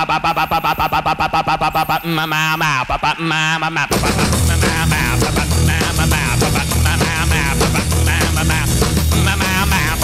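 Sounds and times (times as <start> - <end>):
loud rock music: 3.8 - 10.0.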